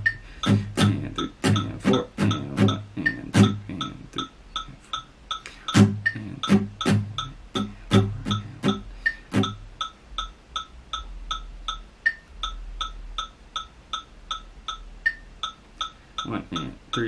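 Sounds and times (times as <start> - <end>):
acoustic guitar strumming: 0.0 - 4.3, 5.4 - 9.8
metronome ticking: 0.0 - 17.0.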